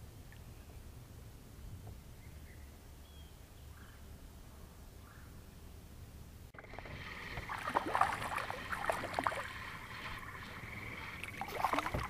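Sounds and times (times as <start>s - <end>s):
water splashing: 6.6s - 12.0s.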